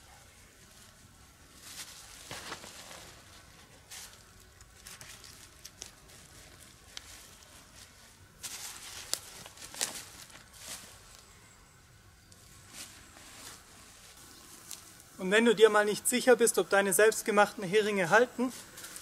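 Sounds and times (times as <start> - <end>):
dry leaves rustling: 0.6 - 11.4
tarp fabric rustling: 0.7 - 4.2, 4.8 - 11.2.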